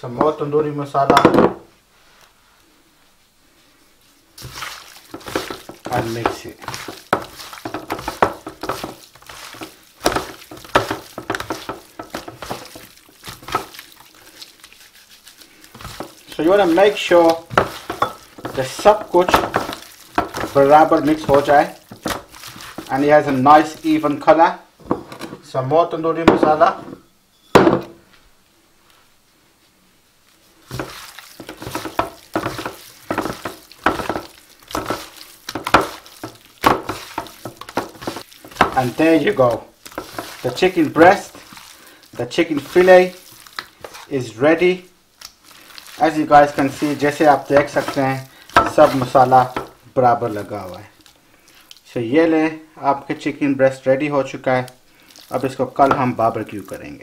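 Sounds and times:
hands squelching raw chicken: 4.4s - 24.2s, 30.6s - 52.0s, 54.4s - 57.0s.

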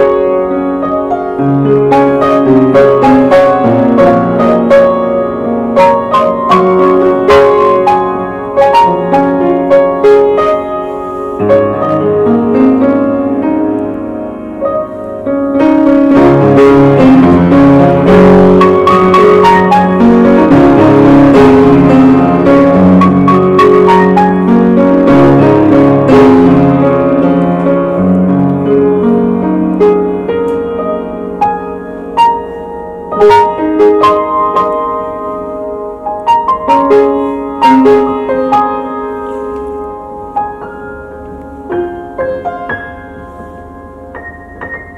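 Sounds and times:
piano notes and chords: 0.0s - 44.9s.

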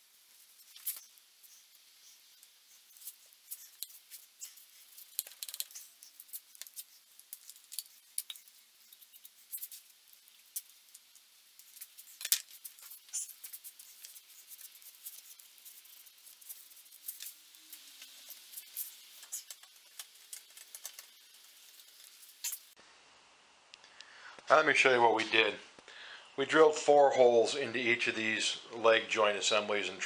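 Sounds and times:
gloved fingers rubbing glue: 0.0s - 22.7s.

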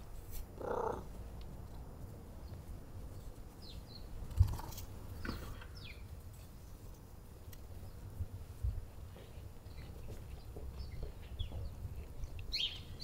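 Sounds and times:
small birds chirping: 2.4s - 4.5s, 5.2s - 6.2s, 9.6s - 13.0s.

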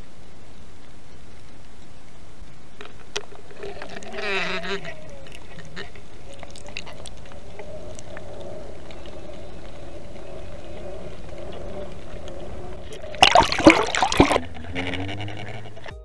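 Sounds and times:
faint wavering hum: 0.0s - 16.0s
muffled underwater noise: 0.0s - 16.0s
splashing and knocking: 12.9s - 14.7s.

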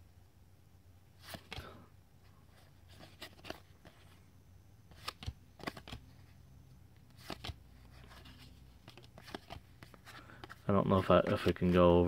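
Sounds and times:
low steady hum: 0.0s - 12.0s
cards being flipped: 1.2s - 1.7s, 2.6s - 4.2s, 4.9s - 6.2s, 7.0s - 11.8s.

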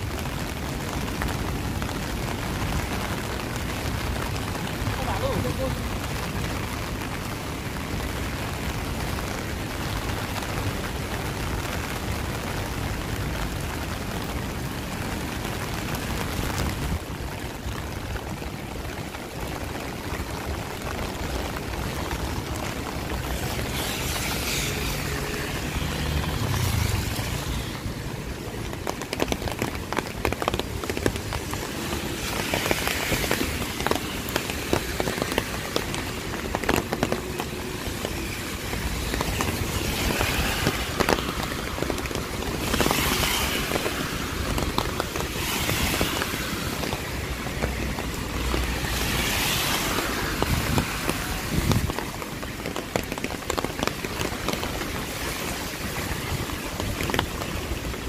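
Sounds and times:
rain falling on street: 0.0s - 58.0s
tyres hissing on wet road: 0.0s - 58.0s.

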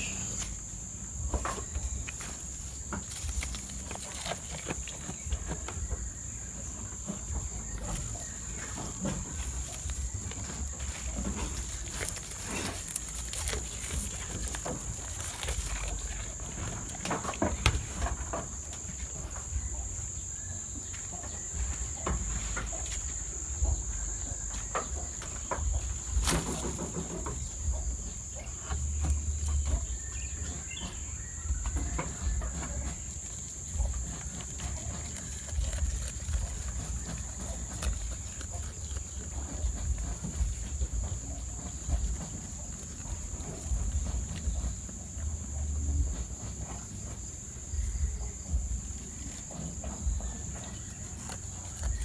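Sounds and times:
goats chewing branches: 0.0s - 52.0s
rustling leaves: 0.0s - 52.0s
stems snapping: 2.0s - 5.2s, 9.4s - 17.8s, 26.2s - 27.0s, 32.7s - 39.5s.

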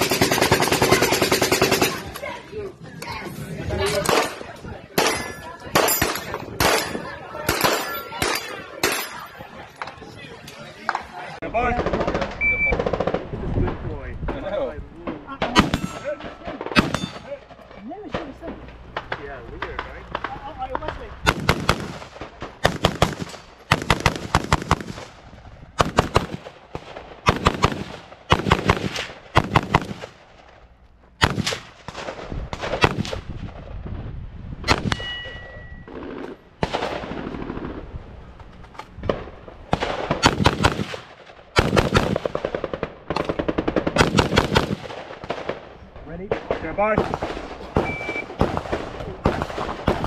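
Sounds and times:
rapid gunfire bursts: 0.0s - 2.1s, 11.7s - 13.3s, 20.0s - 25.2s, 25.8s - 30.2s, 39.7s - 45.7s.

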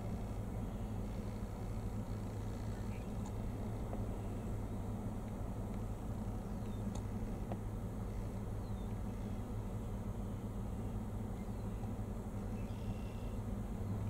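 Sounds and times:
birds chirping: 0.0s - 5.1s, 5.8s - 14.0s
steady low hum: 0.0s - 14.0s.

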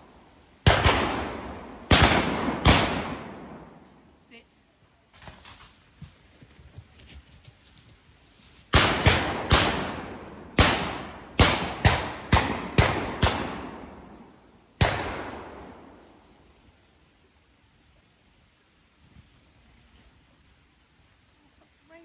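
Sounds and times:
shotguns firing with echoes: 0.6s - 3.8s, 8.7s - 14.2s, 14.8s - 16.0s.

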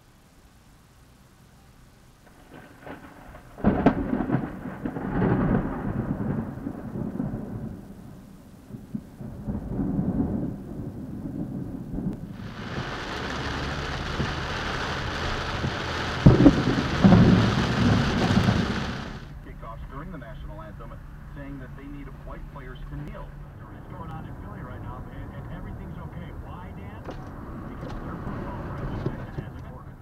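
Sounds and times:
heavy rain hissing: 0.0s - 30.0s
thunder crack: 2.2s - 19.6s
rolling thunder rumble: 2.2s - 30.0s.

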